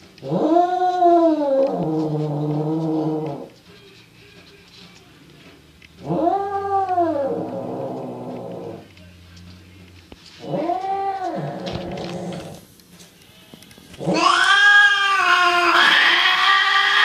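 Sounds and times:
cat yowling: 0:00.2 - 0:02.0, 0:06.0 - 0:07.9, 0:14.0 - 0:17.0.

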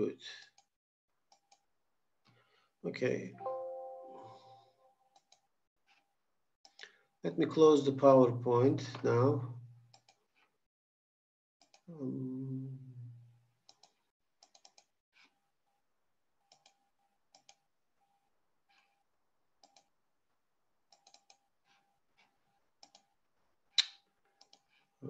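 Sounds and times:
mouse and keyboard clicks: 0:13.7 - 0:15.3, 0:20.9 - 0:21.4, 0:22.8 - 0:23.1, 0:23.8 - 0:24.8.

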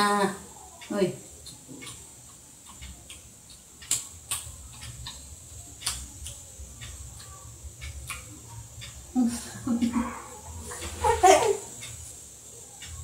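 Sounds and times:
faint low hum: 0:00.0 - 0:13.0
sharp clicks and ticks: 0:00.7 - 0:09.2, 0:11.7 - 0:13.0.

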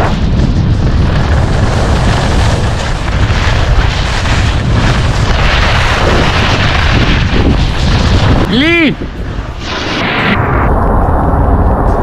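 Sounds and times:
skis sliding on snow: 0:00.0 - 0:08.4
wind buffeting microphone: 0:00.0 - 0:12.0.

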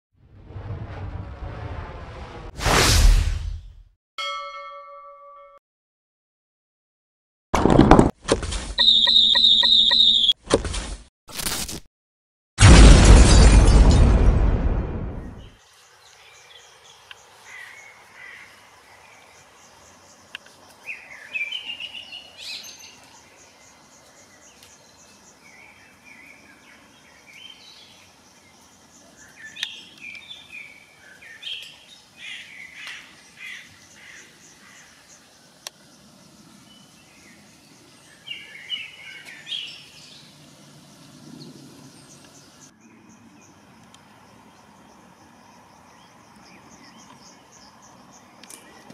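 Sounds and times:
birds chirping: 0:08.8 - 0:10.4, 0:15.2 - 0:48.9
faint outdoor background noise: 0:15.4 - 0:48.9.

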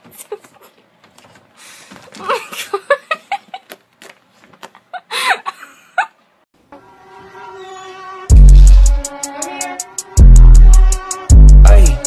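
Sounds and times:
person laughing: 0:02.1 - 0:03.8
held musical chord: 0:06.7 - 0:12.0.

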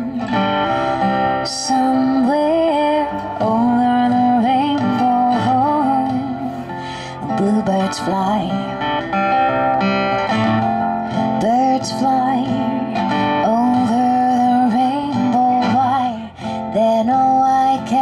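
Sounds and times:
woman singing: 0:00.0 - 0:09.1, 0:11.2 - 0:18.0
strummed acoustic guitar: 0:00.0 - 0:18.0.

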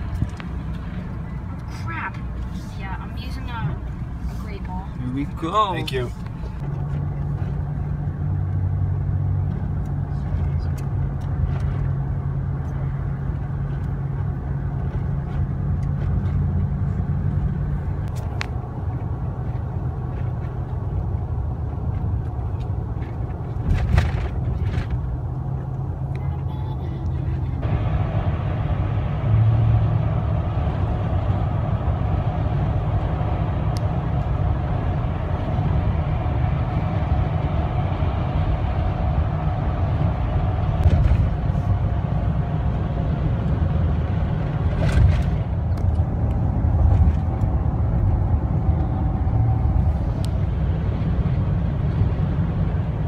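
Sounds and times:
car engine hum and tyre rumble: 0:00.0 - 0:53.0
hissy highway road noise: 0:00.0 - 0:53.0.

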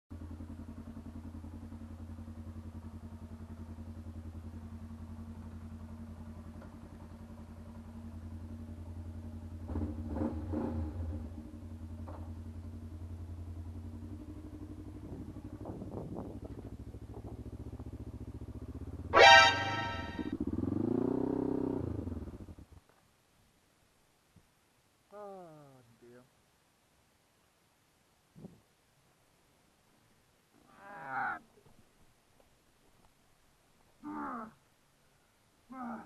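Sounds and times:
motorcycle engine running: 0:00.1 - 0:22.9.

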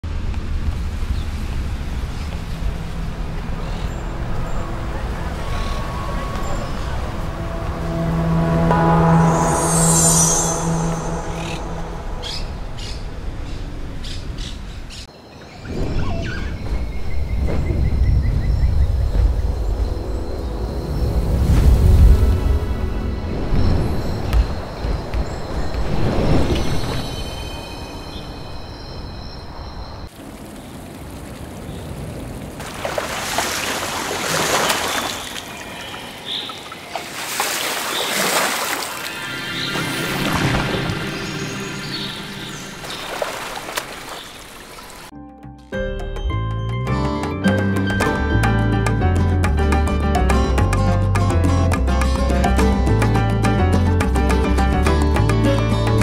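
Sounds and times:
water lapping and trickling: 0:00.0 - 0:08.3, 0:30.1 - 0:45.1
low rumble: 0:00.0 - 0:14.7
rushing swells of noise: 0:00.1 - 0:14.4
birds chirping and squawking: 0:03.1 - 0:08.7, 0:09.5 - 0:21.0, 0:37.8 - 0:45.1
high steady tones: 0:04.7 - 0:13.4.

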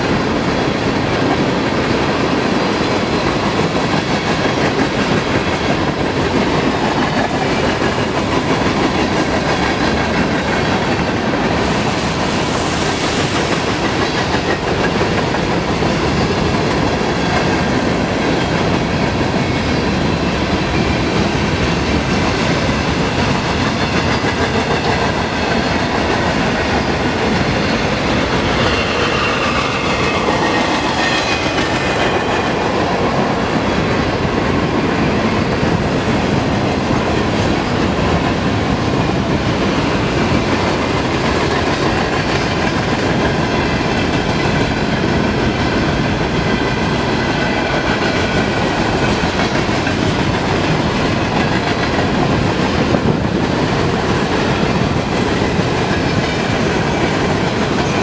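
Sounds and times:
freight train wheels clattering: 0:00.0 - 0:58.0.

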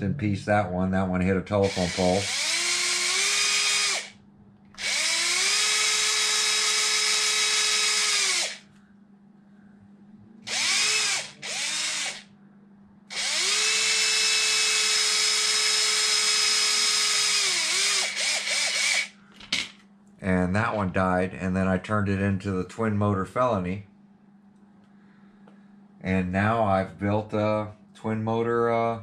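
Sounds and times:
cordless driver whining: 0:01.6 - 0:04.2, 0:04.8 - 0:08.7, 0:10.5 - 0:12.3, 0:13.1 - 0:19.2.

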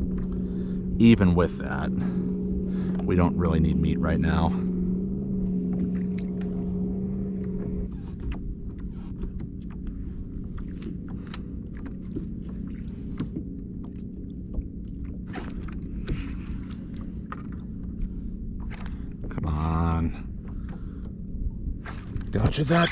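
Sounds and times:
low rumble and hum: 0:00.0 - 0:22.9.

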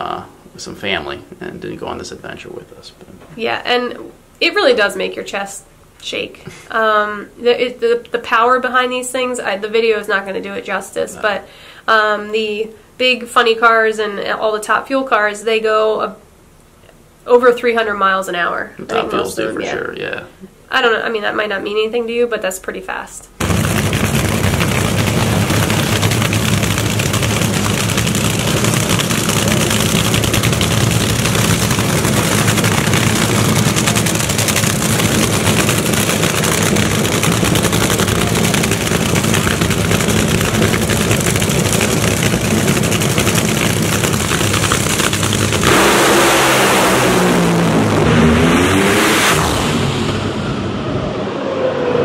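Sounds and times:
cars launching at full throttle: 0:23.4 - 0:52.0
drag racing engines: 0:23.4 - 0:52.0.

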